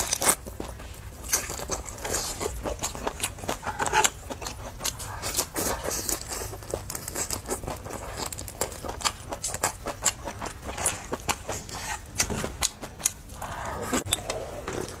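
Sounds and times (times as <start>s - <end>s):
wet chewing and mouth smacks: 0.0s - 15.0s.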